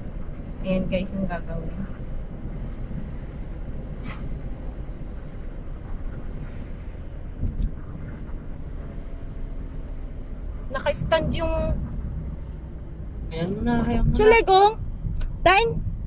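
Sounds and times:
road and engine rumble in car: 0.0 - 16.0
brief hiss: 4.0 - 4.4.

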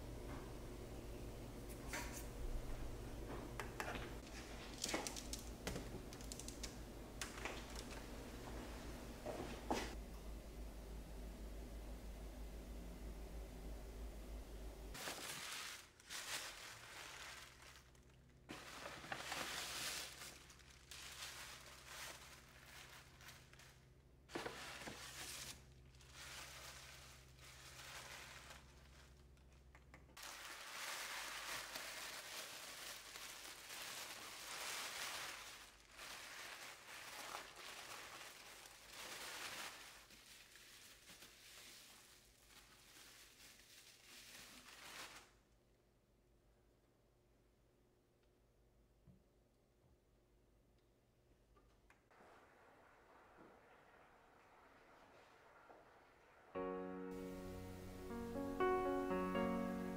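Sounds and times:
tissue paper and bubble wrap crinkling: 4.2 - 8.9, 14.9 - 45.5.

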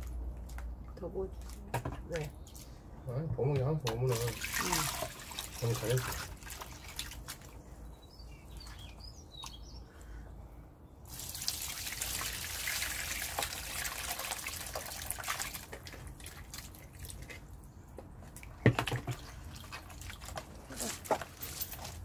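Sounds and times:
liquid pouring through colander: 4.1 - 7.3, 11.1 - 17.3
wet squelching: 4.1 - 7.6, 18.4 - 21.1
hands squishing food in water: 12.2 - 17.6, 18.3 - 20.7.

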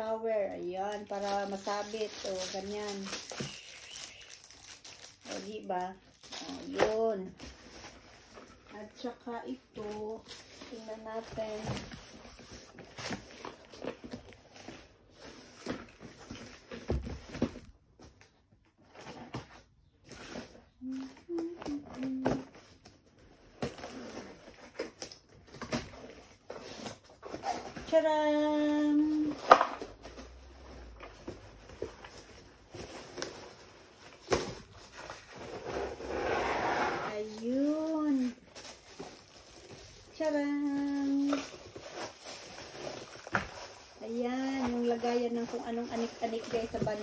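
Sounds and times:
cardboard box scraping and rustling: 9.8 - 17.5, 30.0 - 37.8.

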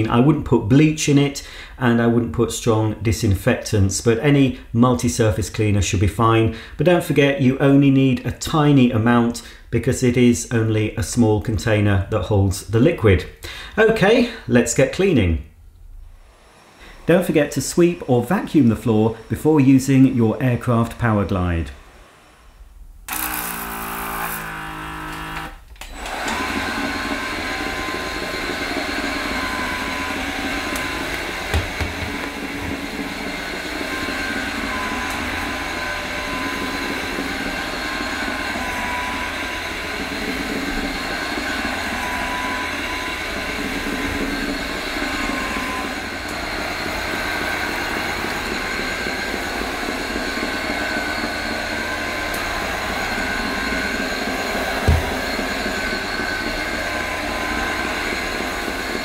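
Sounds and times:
floor cleaner motor whir: 16.0 - 59.0.

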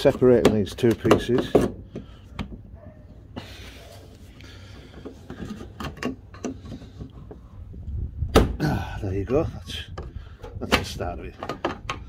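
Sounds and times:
plastic tool scraping panel: 4.6 - 7.5
small clicks and knocks: 4.7 - 7.4.

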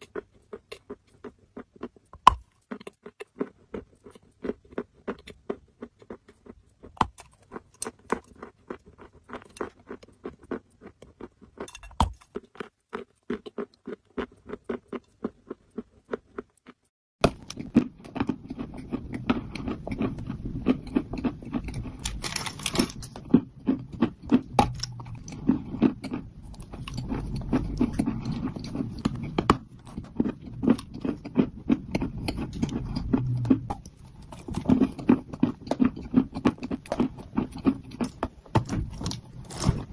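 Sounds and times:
clay crunching as it is chewed: 0.0 - 39.9
low rumble and hiss: 18.7 - 35.3.

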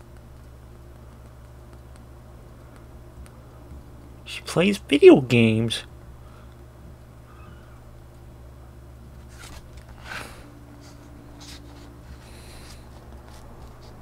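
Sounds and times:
low electrical hum: 0.0 - 14.0
paper pages rustling: 9.2 - 10.1, 10.8 - 14.0.

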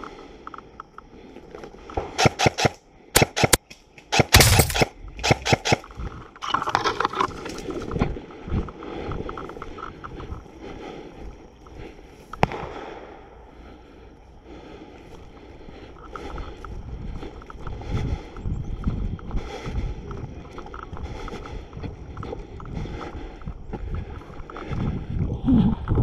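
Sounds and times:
airsoft gun shots: 2.2 - 5.8.

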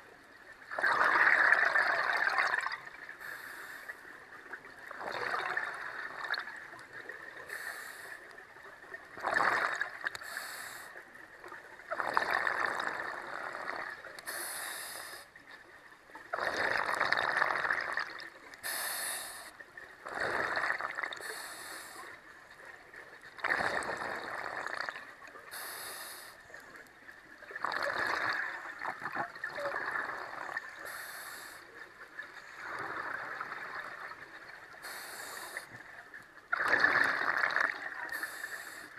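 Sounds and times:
exhaled bubbles rushing: 0.7 - 2.9, 4.9 - 6.6, 9.2 - 10.1, 11.9 - 14.0, 16.3 - 18.3, 20.0 - 21.2, 23.4 - 25.1, 27.5 - 30.8, 32.5 - 34.3, 36.5 - 37.9
regulator inhale hiss: 3.2 - 4.0, 7.4 - 8.3, 10.2 - 11.0, 14.2 - 15.3, 18.6 - 19.6, 21.2 - 22.2, 25.5 - 26.4, 30.8 - 31.7, 34.8 - 35.8, 38.1 - 38.9.

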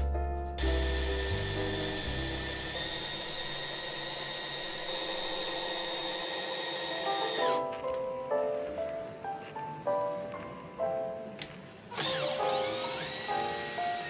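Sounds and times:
background music: 0.0 - 3.4
cordless drill boring into wood: 0.6 - 7.7, 11.9 - 14.0.

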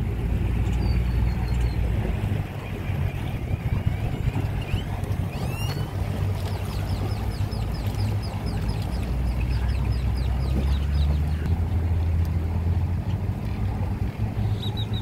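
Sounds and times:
boat motor running: 0.0 - 15.0
bird calling: 2.6 - 11.5.

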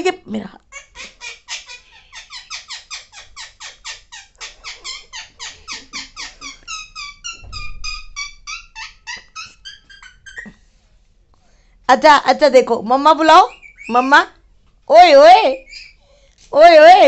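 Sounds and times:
parakeet harsh calls: 0.7 - 10.6.

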